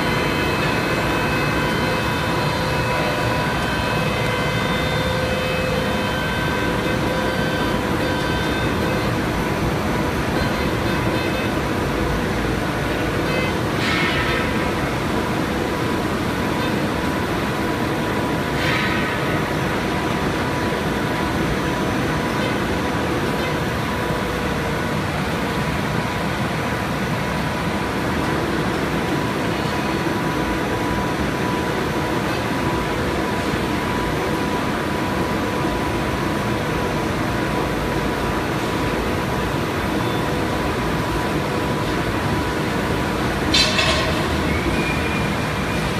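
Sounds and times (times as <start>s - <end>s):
faint machine whine: 0.0s - 45.9s
machines running steadily: 0.0s - 45.9s.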